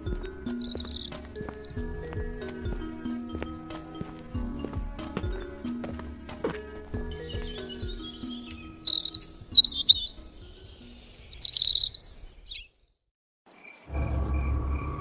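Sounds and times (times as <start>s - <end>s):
small birds twittering: 0.0s - 2.6s, 7.0s - 13.9s
soft background music: 0.0s - 12.3s.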